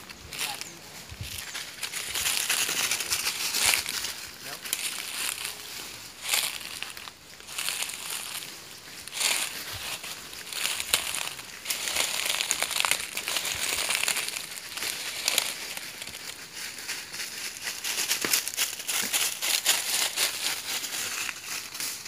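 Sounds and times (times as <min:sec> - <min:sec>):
footsteps crunching dry leaves: 0:00.0 - 0:22.0.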